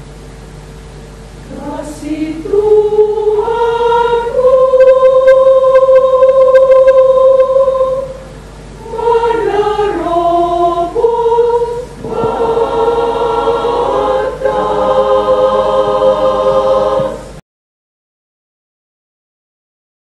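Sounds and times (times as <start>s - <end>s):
women's choir singing: 1.5s - 8.2s, 8.8s - 17.4s.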